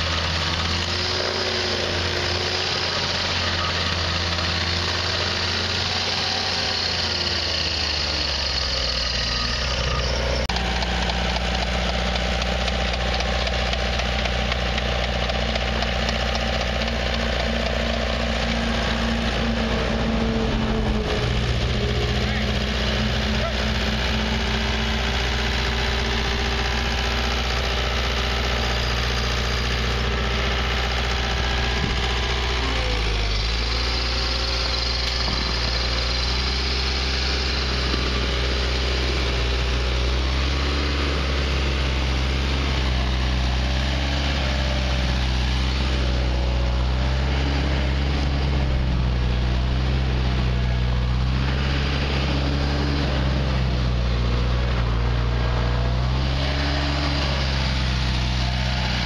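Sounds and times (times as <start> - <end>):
stump grinder engine running: 0.0 - 59.0.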